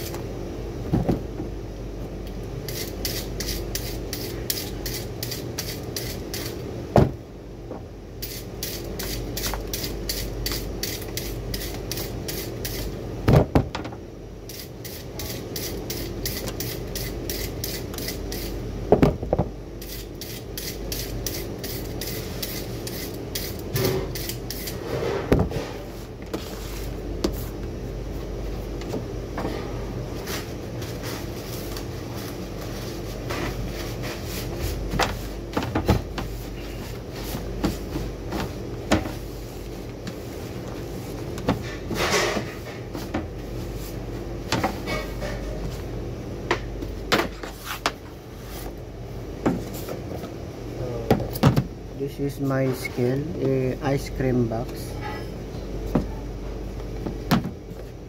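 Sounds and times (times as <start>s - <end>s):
peeler scraping carrot: 2.7s - 6.6s, 19.8s - 24.8s.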